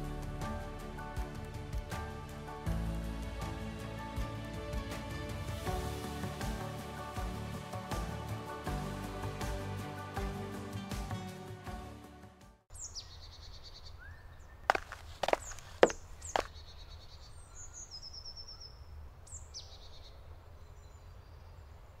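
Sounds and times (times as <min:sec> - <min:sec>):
background music: 0:00.0 - 0:12.7
birds whistling and trilling: 0:15.4 - 0:21.5.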